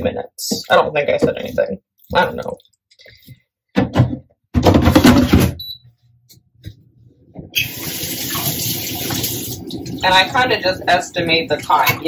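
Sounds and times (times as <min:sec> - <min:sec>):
tap water running: 0:07.4 - 0:12.0.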